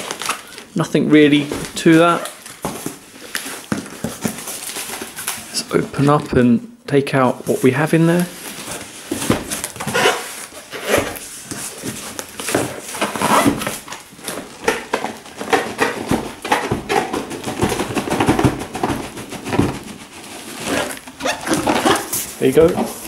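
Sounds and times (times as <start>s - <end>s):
shrink-wrapped box sliding: 0.0s - 6.0s, 7.5s - 23.0s
cardboard flaps rustling and scraping: 0.0s - 6.4s, 7.4s - 23.0s
box knocking on wooden floor: 14.6s - 20.0s.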